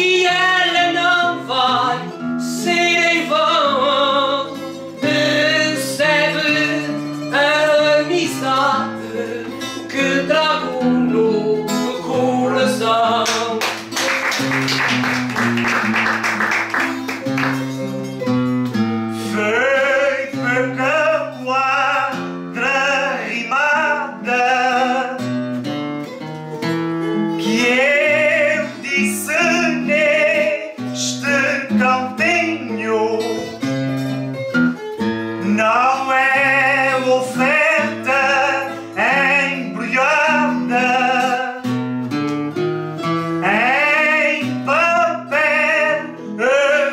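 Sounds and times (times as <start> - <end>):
person singing with vibrato: 0.0 - 13.9, 18.8 - 25.4, 27.3 - 33.7, 35.4 - 41.8, 43.2 - 46.9
plucked acoustic guitars: 0.0 - 46.9.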